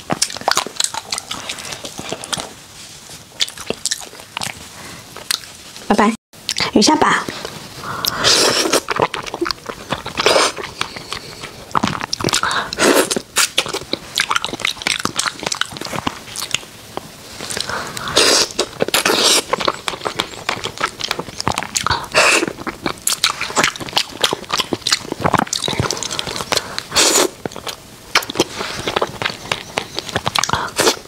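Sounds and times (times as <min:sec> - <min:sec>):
crunching fish: 0:00.0 - 0:02.7, 0:07.9 - 0:31.0
quiet chewing: 0:00.0 - 0:05.9, 0:06.5 - 0:31.0
mouth clicks: 0:07.9 - 0:31.0.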